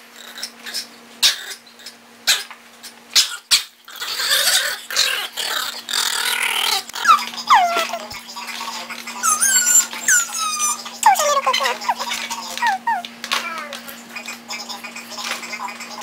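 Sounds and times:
puppy growling in play: 0:03.2 - 0:08.2, 0:09.0 - 0:14.0.

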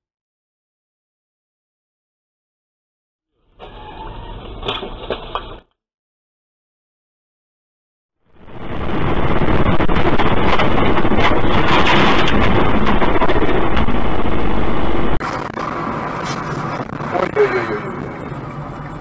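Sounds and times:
wind and road rumble in vehicle: 0:08.4 - 0:19.0
knocks and rattles: 0:10.0 - 0:14.5
traffic noise: 0:11.8 - 0:19.0.

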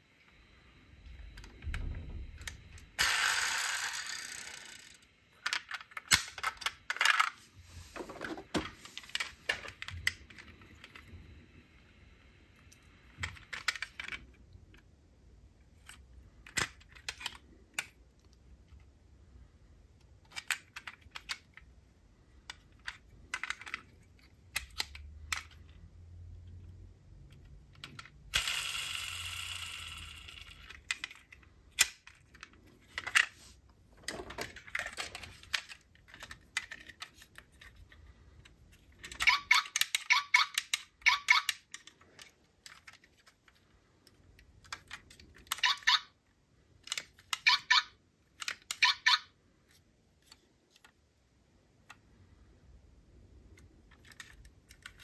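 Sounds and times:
toy cars clicking and clinking: 0:03.0 - 0:07.4, 0:13.1 - 0:14.4, 0:20.2 - 0:21.7, 0:22.4 - 0:25.8, 0:27.3 - 0:33.3, 0:34.1 - 0:46.2, 0:46.8 - 0:49.4.

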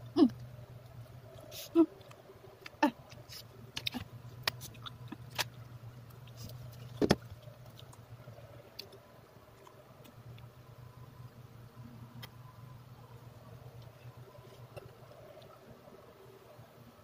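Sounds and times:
steady low hum: 0:00.0 - 0:17.0
chewing sounds: 0:00.3 - 0:10.5.

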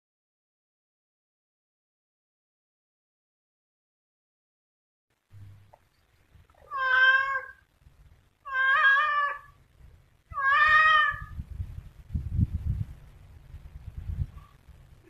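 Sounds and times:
low rumbling noise: 0:05.2 - 0:08.5, 0:09.4 - 0:15.0
cat meowing: 0:06.6 - 0:07.6, 0:08.4 - 0:09.6, 0:10.3 - 0:11.4.

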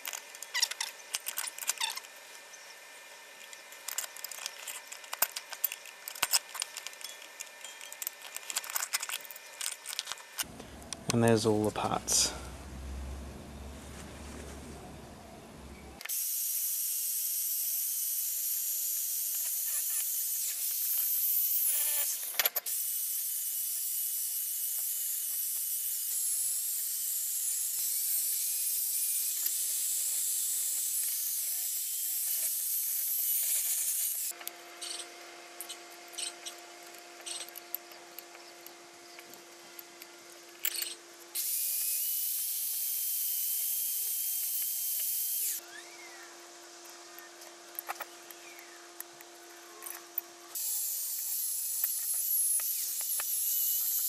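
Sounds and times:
wire brush drill grinding metal: 0:00.0 - 0:10.5, 0:18.4 - 0:45.6, 0:49.7 - 0:54.0.

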